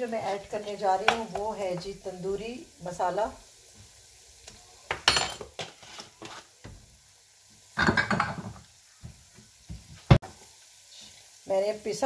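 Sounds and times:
paste sizzling in oil: 0.0 - 12.0
spoon and glass jars clinking: 5.0 - 5.7.

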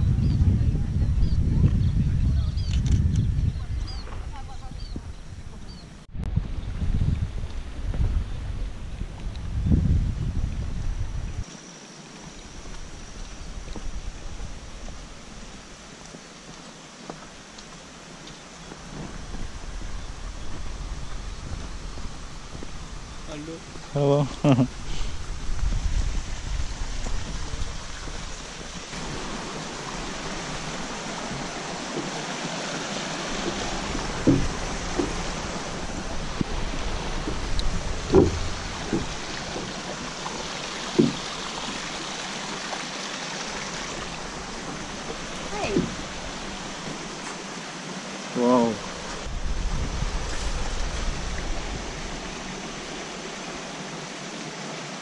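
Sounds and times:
low rumble: 0.0 - 11.4
footsteps on wooden bridge: 7.2 - 9.5, 12.1 - 14.5, 16.0 - 23.9, 25.2 - 42.0, 43.5 - 47.5
stream rushing over rocks: 11.4 - 55.0.

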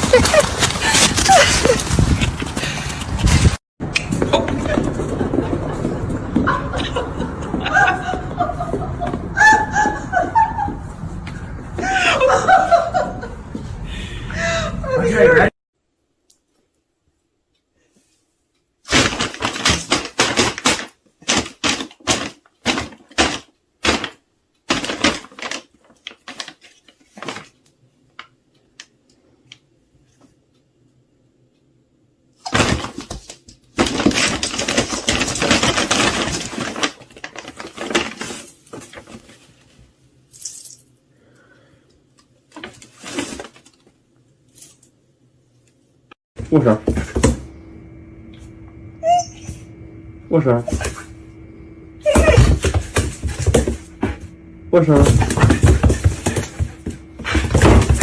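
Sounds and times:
paper crinkling and rustling: 0.0 - 3.6, 24.7 - 27.6, 32.6 - 39.9.

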